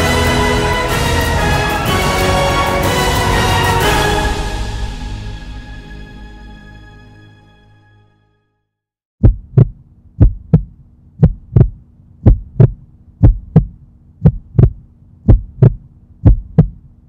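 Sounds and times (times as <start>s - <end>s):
heartbeat thumps: 9.2s - 16.8s.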